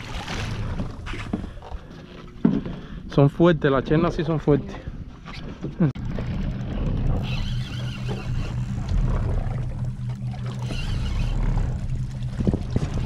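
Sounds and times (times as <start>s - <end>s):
outboard motor idling: 5.9s - 13.0s
fishing reel whirring: 6.0s - 13.0s.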